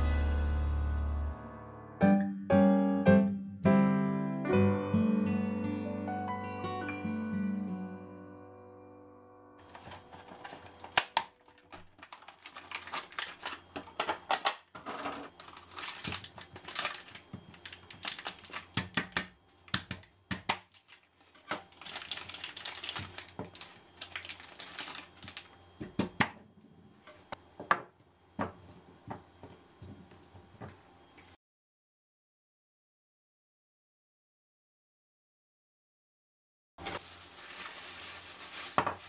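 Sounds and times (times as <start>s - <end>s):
plastic pack crinkling: 9.6s - 25.6s, 36.8s - 39.0s.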